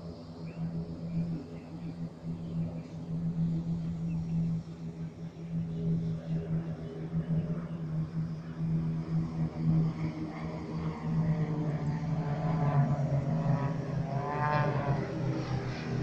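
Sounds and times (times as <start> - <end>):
propeller aircraft droning: 0.0 - 16.0.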